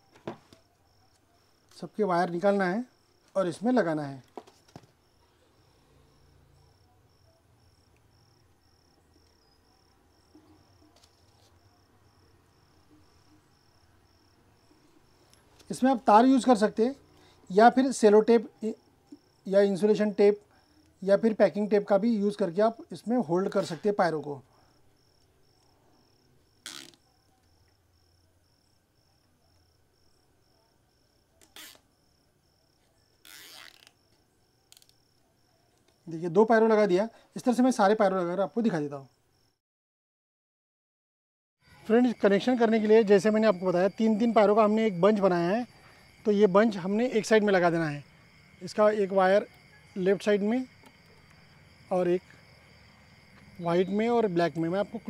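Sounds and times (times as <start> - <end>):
faint high cricket chirp: 0.0 - 39.6, 41.6 - 55.0.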